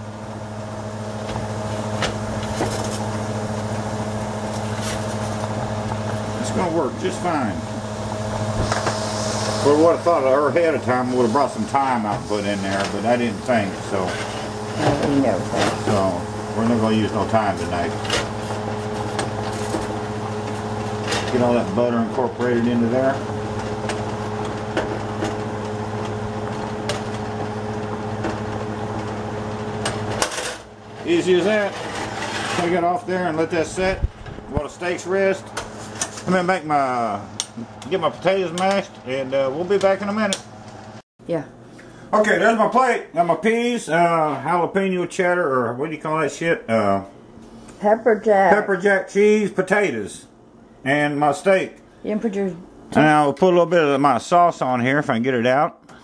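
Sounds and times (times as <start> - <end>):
kitchen exhaust fan humming: 0.0 - 56.0
faint sizzling: 0.3 - 24.0
sauce sizzling in a skillet: 7.6 - 10.1.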